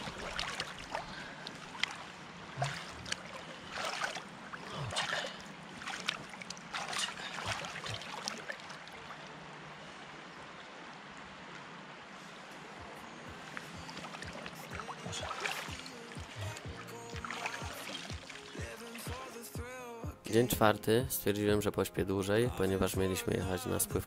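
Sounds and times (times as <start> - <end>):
hands splashing in water: 0.0 - 9.0, 13.5 - 19.2
river rushing: 0.0 - 20.0.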